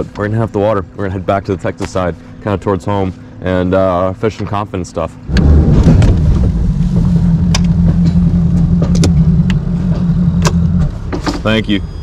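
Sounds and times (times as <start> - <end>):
outboard motor droning: 0.0 - 12.0.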